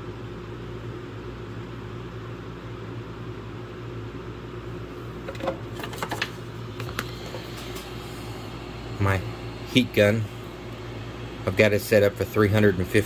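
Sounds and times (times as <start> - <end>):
low mechanical hum: 0.0 - 13.0
clicks and knocks of handling: 5.2 - 7.8.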